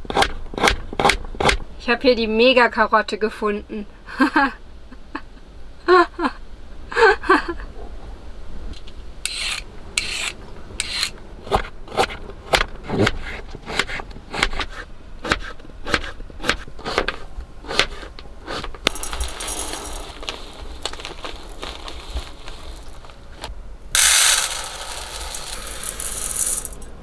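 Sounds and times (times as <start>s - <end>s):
knife scraping strokes: 9.3s - 11.1s
dry rice pouring into mug: 18.9s - 23.2s, 24.0s - 26.9s.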